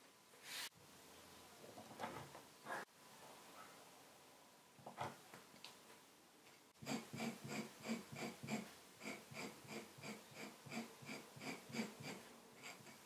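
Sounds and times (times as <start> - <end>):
knife scraping leather: 6.8 - 13.0.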